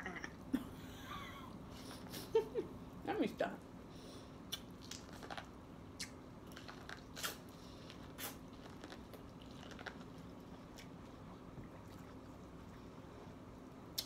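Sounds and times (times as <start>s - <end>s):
wet mouth clicks: 4.5s - 7.5s.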